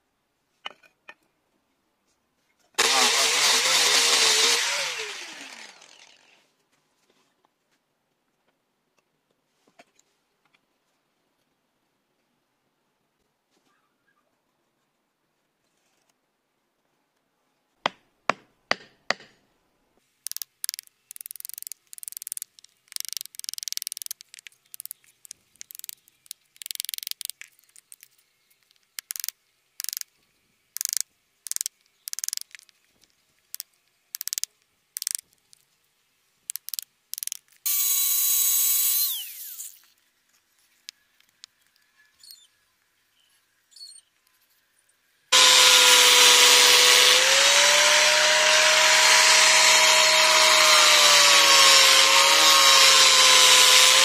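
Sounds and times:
blade shaving wood: 2.8s - 6.4s, 37.7s - 39.9s, 45.4s - 54.0s
electric power tool running: 2.8s - 6.4s, 37.7s - 39.8s, 45.4s - 54.0s
power tool whining: 2.8s - 6.4s, 37.7s - 39.9s, 45.4s - 54.0s.

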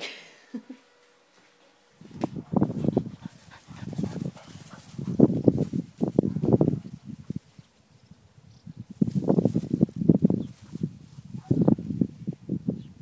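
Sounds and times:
dogs making rough noises: 2.3s - 7.0s.

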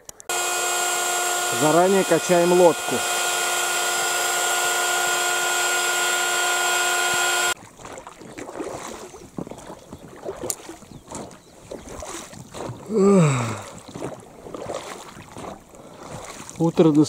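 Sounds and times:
electric air pump whine: 0.3s - 7.6s.

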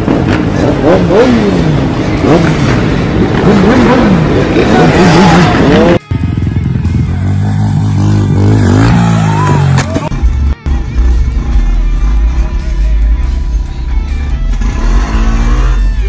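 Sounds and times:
motorcycle engines revving: 0.0s - 12.7s, 14.2s - 16.0s
background music: 5.7s - 16.0s.

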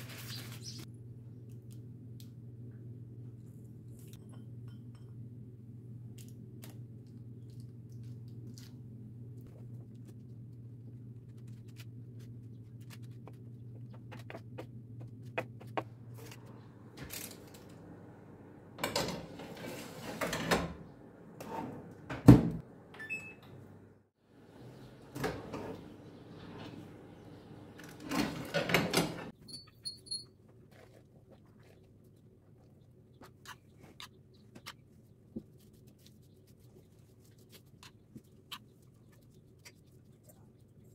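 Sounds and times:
low steady hum: 0.8s - 19.8s
tray scraping on oven rack: 19.0s - 20.7s.

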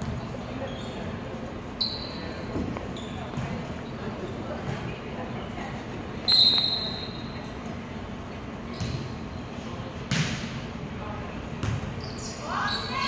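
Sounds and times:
volleyball being hit: 10.1s - 10.5s.

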